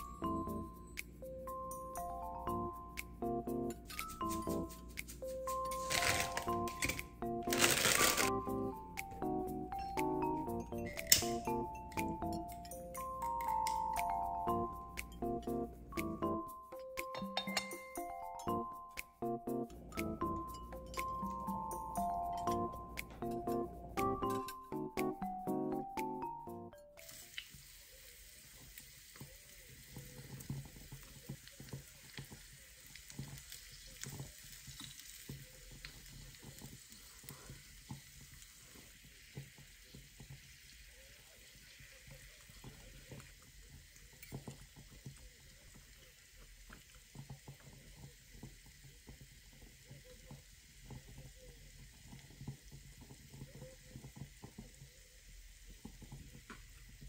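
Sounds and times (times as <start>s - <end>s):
chopsticks clicking and tapping: 2.6s - 9.4s, 10.0s - 16.2s, 16.8s - 25.6s
meat sizzling on grill: 3.8s - 8.4s, 27.0s - 57.0s.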